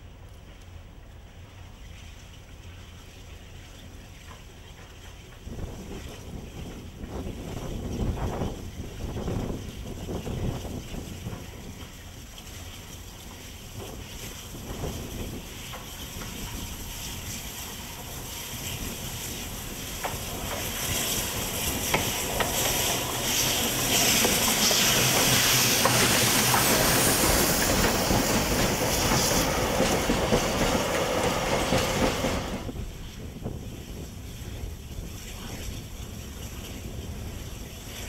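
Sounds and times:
train wheels clicking on rails: 4.2s - 34.3s
steam locomotive hissing: 11.2s - 34.5s.

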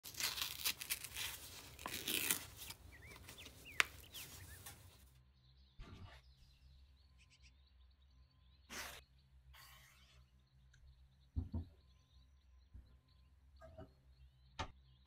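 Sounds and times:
paper liner crinkling and tearing: 0.0s - 5.0s.

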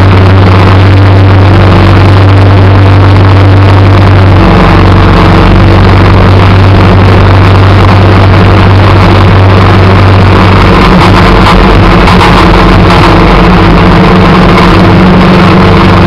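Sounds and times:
small engine running under load: 2.0s - 16.0s.

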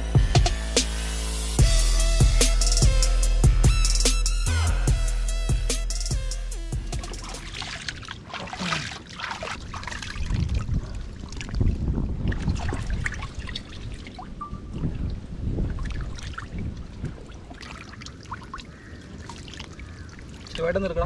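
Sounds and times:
music with drums: 0.0s - 7.5s
water splashing and sloshing: 6.8s - 21.0s.

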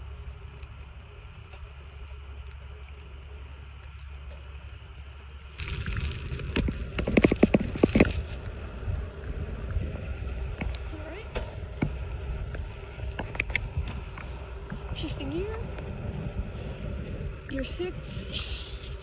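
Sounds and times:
bicycle tyres rolling on asphalt: 0.0s - 19.0s
wind on microphone: 5.6s - 19.0s
bicycle knocks and rattles: 6.3s - 8.4s.

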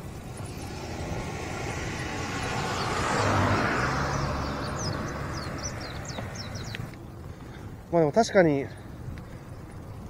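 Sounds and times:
car passing: 0.0s - 10.0s
bird chirping: 1.7s - 7.7s.

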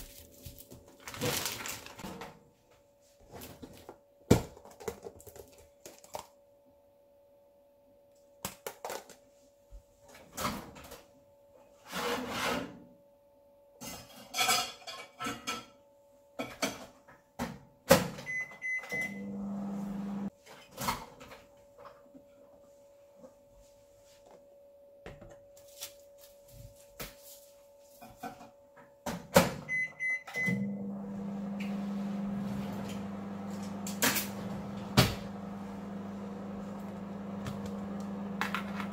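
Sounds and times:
plastic containers and bags rustling: 0.0s - 2.4s
microwave oven humming: 18.2s - 20.3s, 29.7s - 38.9s
keypad beeps: 18.3s - 19.2s.

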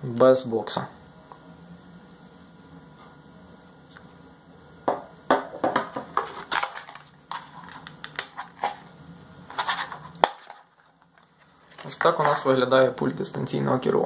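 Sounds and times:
plastic packaging crinkling: 6.2s - 8.8s, 9.5s - 12.5s.

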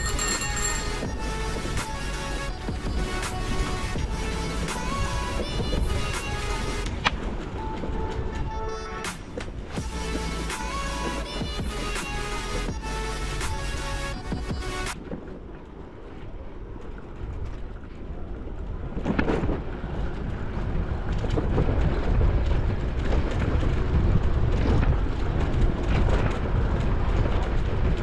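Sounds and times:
wind buffeting microphone: 15.0s - 28.0s.

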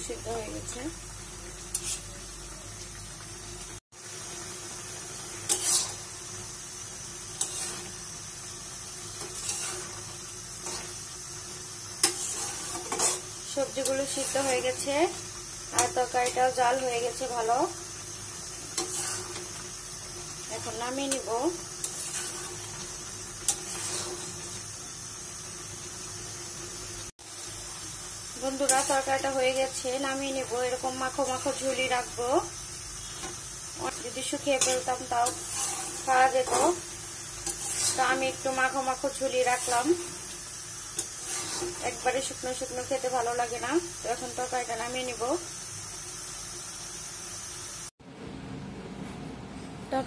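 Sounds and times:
curry bubbling in a pan: 1.0s - 43.1s
spatula scraping a pan: 1.7s - 2.2s, 5.4s - 6.1s, 7.2s - 8.1s, 8.8s - 11.1s, 11.9s - 16.6s, 18.5s - 24.7s, 33.0s - 43.0s.

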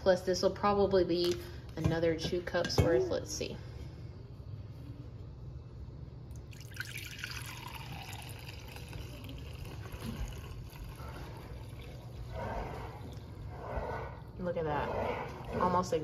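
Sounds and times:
broth pouring into glass cup: 6.3s - 14.2s.

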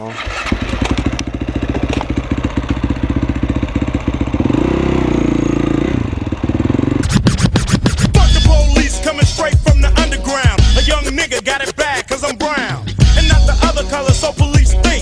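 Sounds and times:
motorcycle engine running: 0.1s - 11.2s, 13.0s - 15.0s
music: 7.0s - 15.0s.

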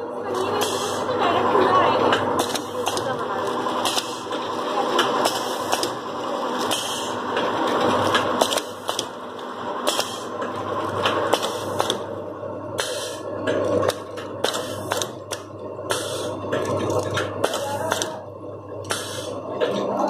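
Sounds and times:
packing machine humming: 0.0s - 20.0s
machine mechanism clacking: 2.0s - 9.2s, 12.8s - 18.2s.

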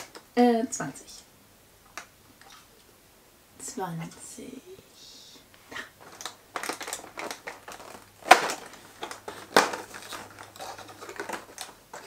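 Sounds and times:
cardboard snapping: 6.0s - 12.0s
cardboard tearing and crackling: 6.0s - 12.0s.

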